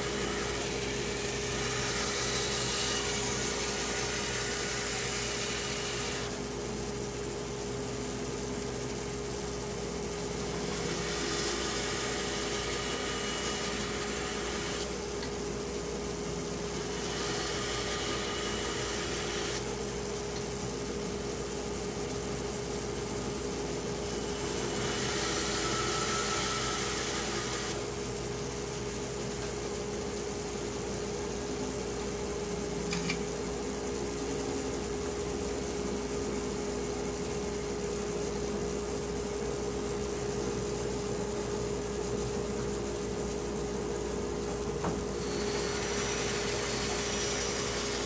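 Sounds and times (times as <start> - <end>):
power tool humming: 0.0 - 6.4, 10.3 - 15.4, 16.6 - 20.0, 24.1 - 28.1, 44.8 - 48.0
wood-cutting noise: 0.0 - 6.4, 10.5 - 15.3, 16.7 - 19.8, 24.2 - 28.0, 44.8 - 48.0.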